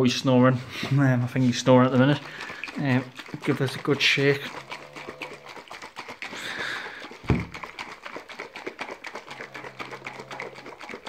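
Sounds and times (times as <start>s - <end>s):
shaker bottle sloshing and knocking: 0.0s - 11.0s
heavy thump: 7.3s - 7.5s.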